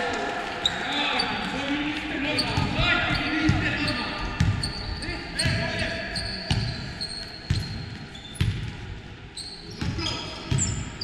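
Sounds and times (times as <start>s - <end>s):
sneaker squeaks: 2.1s - 11.0s
basketball bouncing on gym floor: 2.4s - 4.8s, 6.5s - 8.8s.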